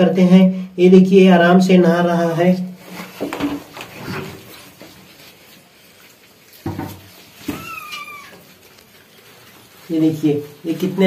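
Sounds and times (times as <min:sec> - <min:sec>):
kitten mewing: 0:07.5 - 0:08.5.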